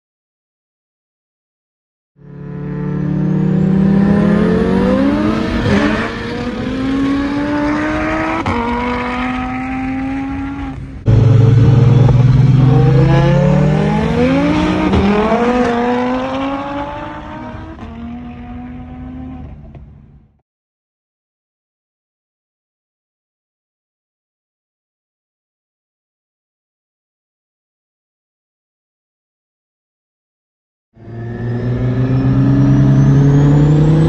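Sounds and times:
car engine accelerating: 2.2s - 20.4s, 31.0s - 34.0s.

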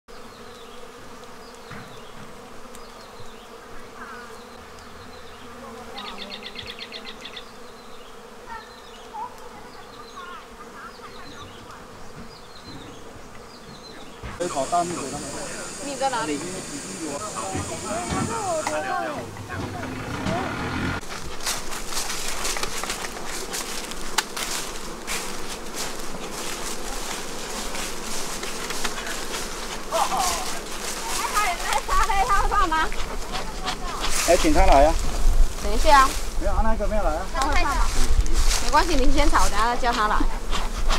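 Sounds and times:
bees buzzing: 0.1s - 40.9s
bird chirping: 4.2s - 20.0s
footsteps on dry leaves: 21.0s - 36.5s, 37.2s - 40.9s.

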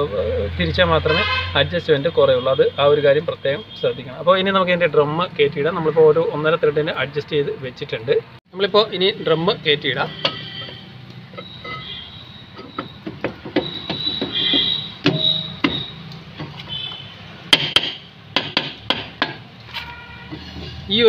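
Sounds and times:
metal knocks and clanks: 10.2s - 20.9s.

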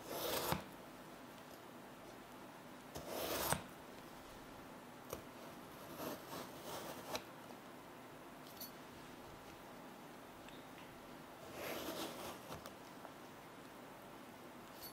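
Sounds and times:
knife slicing potato: 0.0s - 0.7s, 3.0s - 3.7s.

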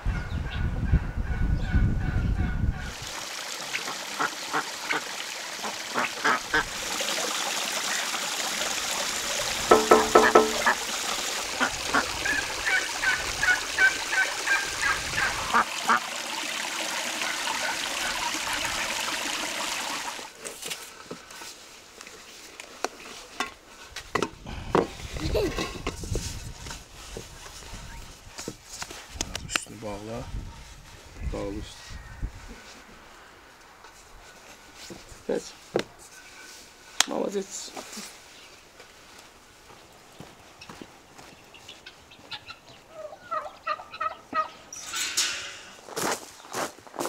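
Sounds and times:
waterfowl honking calls: 3.6s - 6.8s, 9.7s - 20.3s, 41.6s - 44.6s.

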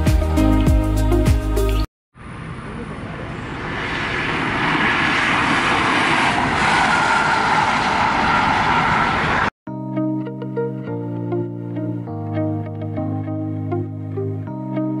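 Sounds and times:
car passing at speed: 2.2s - 9.5s.

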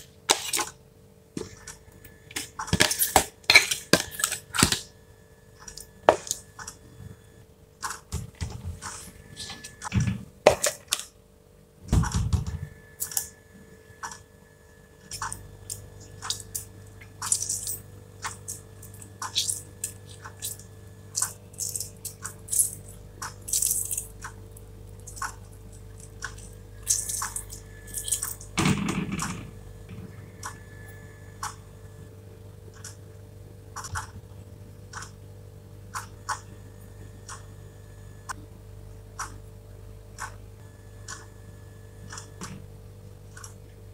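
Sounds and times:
faint steady hum: 0.0s - 43.9s
wet squishing: 15.1s - 24.3s.

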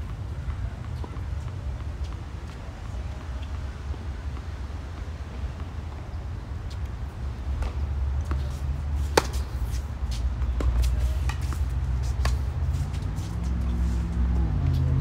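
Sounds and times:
tennis ball struck by rackets: 7.5s - 12.5s.

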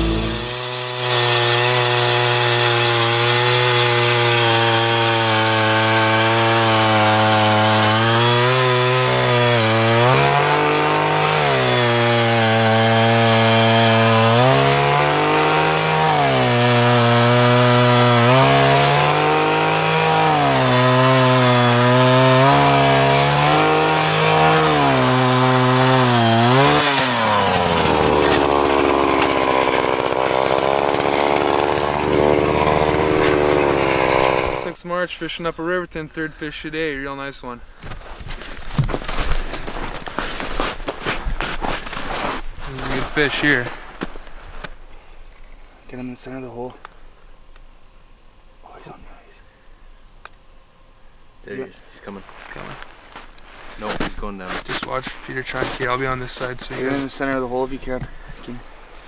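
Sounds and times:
ice auger engine drilling: 0.0s - 34.7s.

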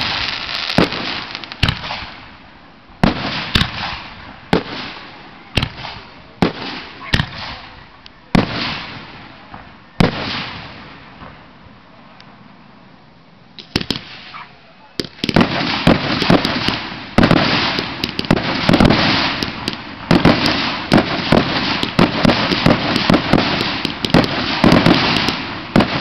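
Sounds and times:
firework shells booming: 0.0s - 2.4s, 3.0s - 7.7s, 13.6s - 14.4s, 15.0s - 26.0s
crackling hiss of fireworks: 0.0s - 26.0s.

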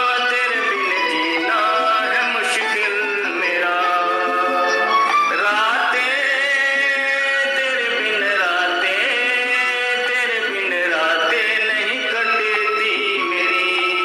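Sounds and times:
background music: 0.0s - 14.0s
man singing: 0.0s - 14.0s.

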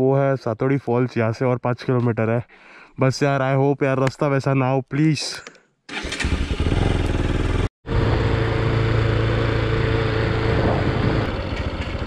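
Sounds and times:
road and wind noise: 5.9s - 12.0s
motorbike engine running: 6.2s - 12.0s.

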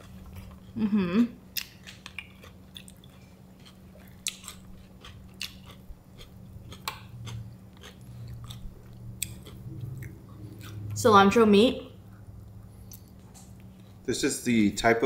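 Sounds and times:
faint low hum: 0.0s - 15.0s
mouth clicks and crunches: 1.5s - 10.8s
chewing and biting meat: 1.6s - 10.9s.

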